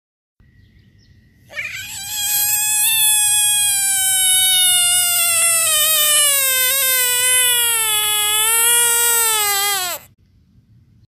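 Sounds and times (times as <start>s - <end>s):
frog distress scream: 1.5s - 10.1s.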